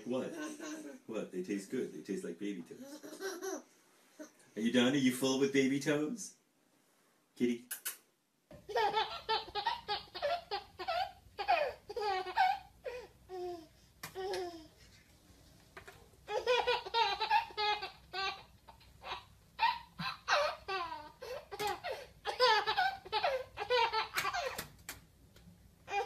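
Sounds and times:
baby laughing: 0.0s - 1.1s, 2.8s - 4.3s, 8.6s - 14.7s, 16.3s - 24.7s.

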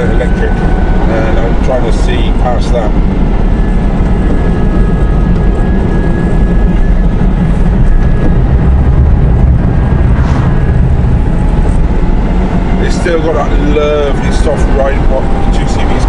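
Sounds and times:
faint drivetrain whine: 0.0s - 16.0s
road and wind rush: 0.0s - 16.0s.

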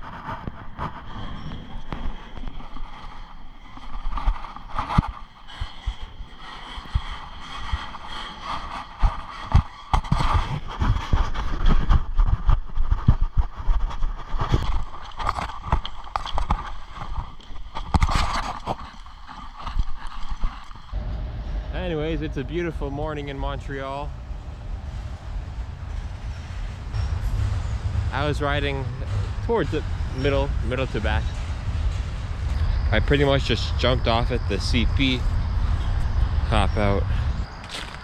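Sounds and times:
footsteps crunching on ballast: 0.0s - 21.0s, 30.3s - 38.0s.

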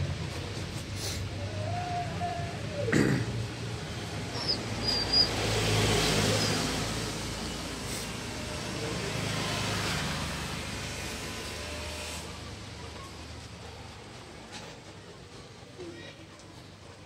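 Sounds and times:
road traffic: 0.0s - 17.0s
vehicle passing: 3.4s - 14.4s.

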